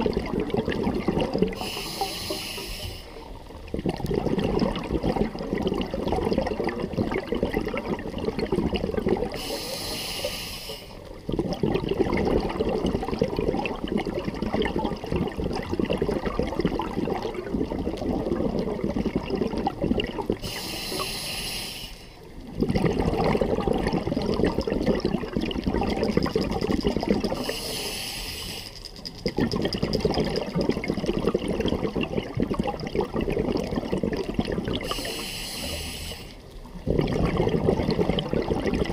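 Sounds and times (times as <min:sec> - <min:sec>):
bubbling exhale: 0:00.0 - 0:38.9
hissing inhales through regulator: 0:01.5 - 0:03.4, 0:09.4 - 0:11.1, 0:20.4 - 0:22.3, 0:27.4 - 0:28.9, 0:34.8 - 0:36.5.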